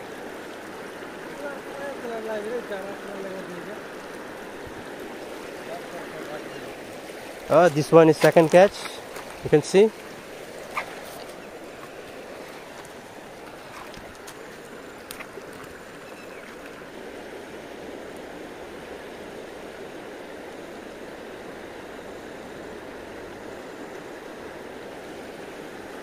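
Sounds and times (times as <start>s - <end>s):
fast-flowing river rushing: 0.0s - 26.0s.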